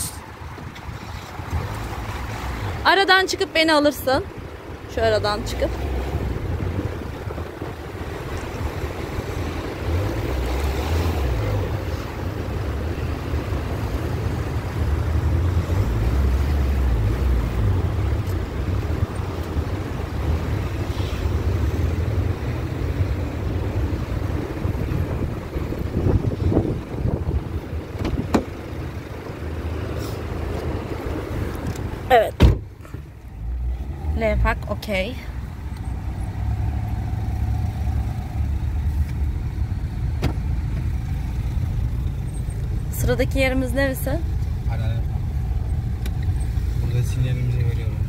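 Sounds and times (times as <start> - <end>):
car engine: 0.0 - 48.0
wind buffeting microphone: 5.8 - 9.9, 22.1 - 28.6.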